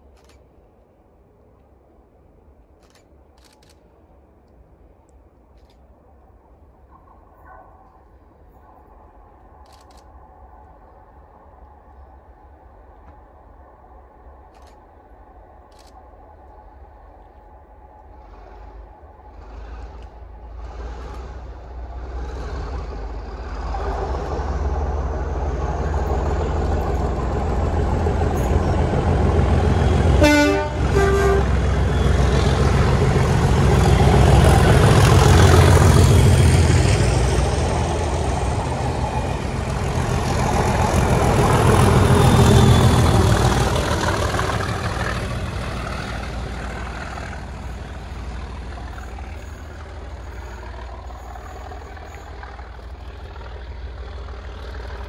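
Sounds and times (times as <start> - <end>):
diesel locomotive engines rumbling: 0.0 - 55.0
locomotive horn blast: 29.6 - 32.7.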